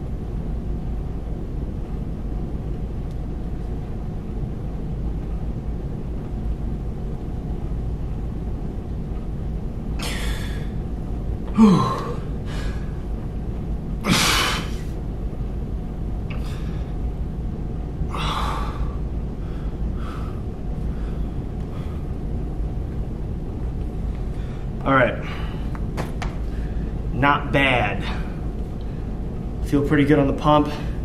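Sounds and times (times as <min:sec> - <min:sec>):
low hum: 0:00.0 - 0:31.0
man grunting: 0:11.5 - 0:12.3
man breathing out hard: 0:18.1 - 0:22.1.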